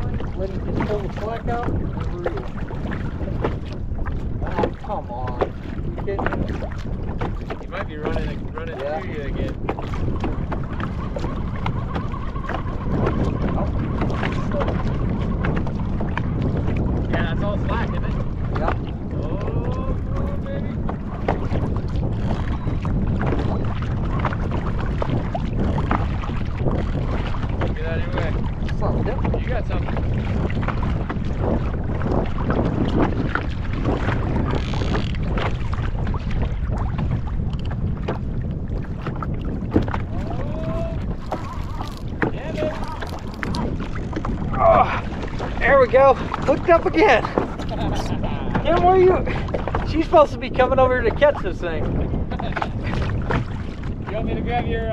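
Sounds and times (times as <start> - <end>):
water slapping kayak hull: 0.0 - 54.9
wind buffeting microphone: 0.0 - 54.9
small clicks and splashes: 41.2 - 44.4.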